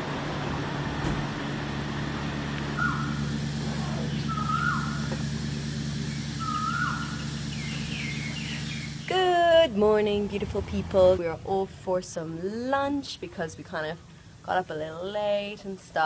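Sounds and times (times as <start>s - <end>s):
low machine hum: 0.0s - 16.0s
bird calling: 2.6s - 9.2s.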